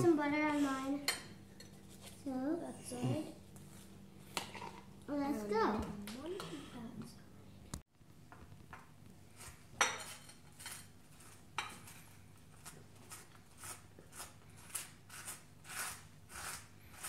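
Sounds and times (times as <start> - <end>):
knife scraping butter on toast: 9.4 - 17.0.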